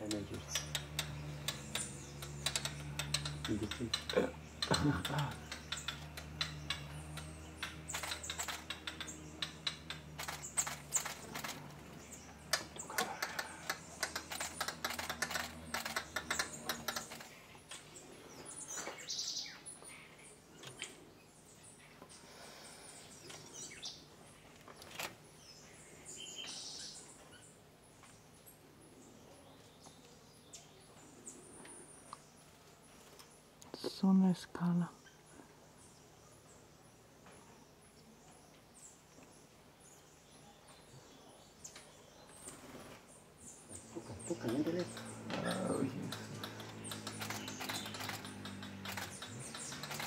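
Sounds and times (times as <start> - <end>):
rapid irregular clicking: 0.0 - 17.8, 44.2 - 50.0
forest birds chirping: 0.0 - 50.0.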